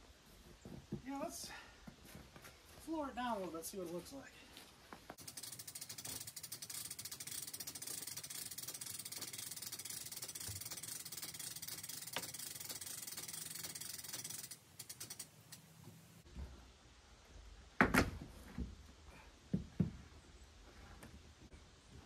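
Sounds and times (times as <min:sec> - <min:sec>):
winch clicking: 0:05.2 - 0:16.0.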